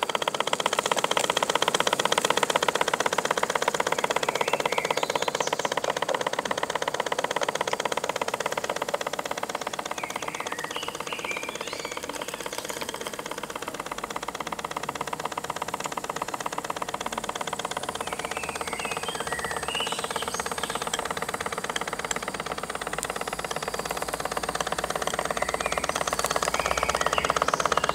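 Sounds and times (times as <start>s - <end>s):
steam engine running: 0.0s - 27.9s.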